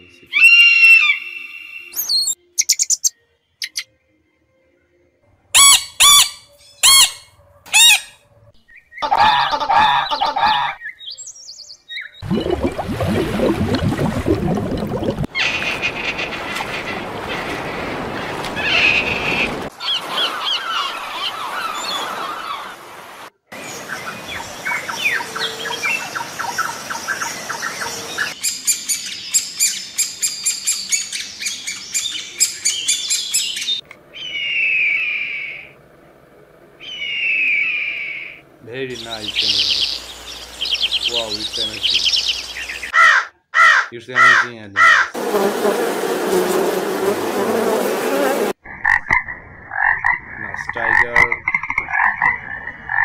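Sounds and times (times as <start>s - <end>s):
birds calling and chirping: 5.6s - 12.5s, 15.3s - 22.8s, 23.6s - 35.8s, 36.8s - 45.2s.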